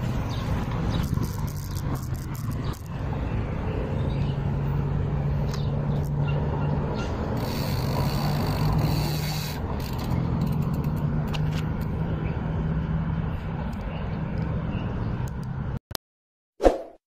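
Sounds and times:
bicycle tyre noise: 0.9s - 2.9s, 7.3s - 11.0s.

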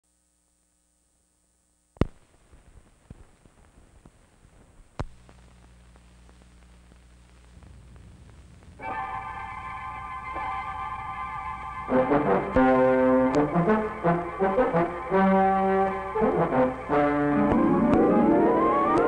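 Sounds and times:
steady low hum: 0.1s - 19.0s
crackle and ticks: 1.9s - 8.8s
film soundtrack pop: 8.8s - 19.0s.

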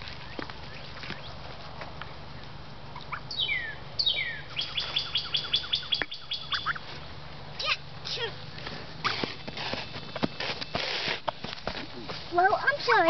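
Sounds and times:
bird chirping and whistling: 3.3s - 6.8s.

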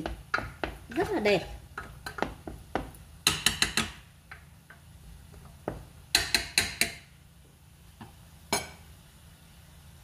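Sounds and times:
wooden spatula knocking metal pot: 0.0s - 4.5s, 5.6s - 7.0s.

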